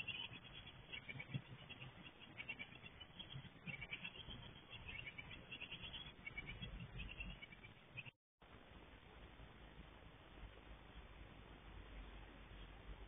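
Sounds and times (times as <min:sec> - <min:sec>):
nestlings chirping: 0:00.0 - 0:08.2.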